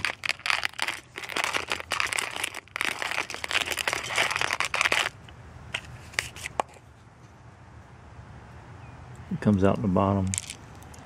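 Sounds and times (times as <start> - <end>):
coffee grinder crunching beans: 0.0 - 5.2.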